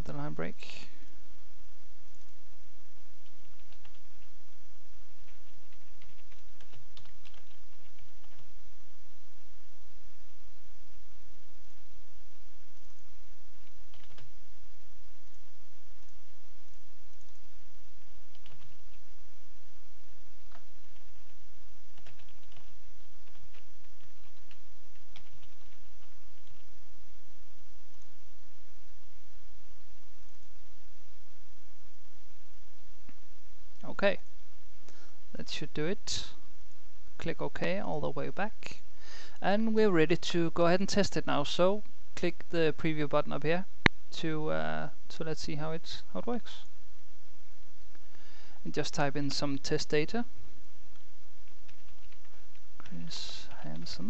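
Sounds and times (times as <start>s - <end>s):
steady low hum: 0.0s - 54.0s
keyboard typing: 3.2s - 4.3s, 5.2s - 8.5s, 13.6s - 14.3s, 18.3s - 19.0s, 20.5s - 26.7s, 50.9s - 53.0s.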